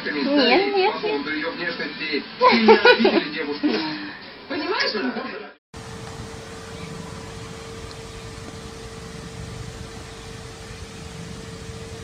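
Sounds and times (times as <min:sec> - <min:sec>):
mid-pitched hum: 0:05.8 - 0:12.0.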